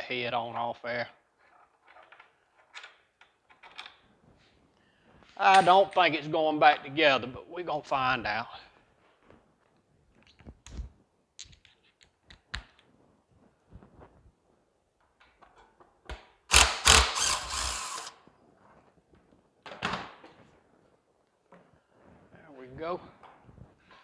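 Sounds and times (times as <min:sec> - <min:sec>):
cordless power driver running: 0:16.5 - 0:18.2.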